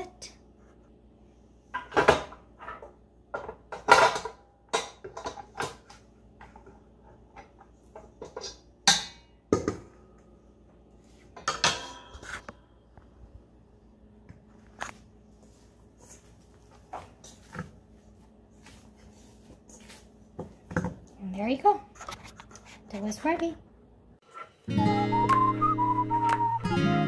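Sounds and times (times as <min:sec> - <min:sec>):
metal bowl knocks and clanks: 0:11.4 - 0:12.1.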